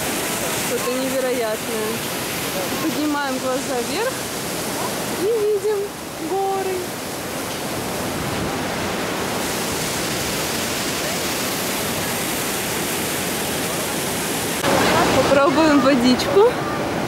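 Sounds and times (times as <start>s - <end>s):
river rushing over rocks: 0.0s - 17.0s.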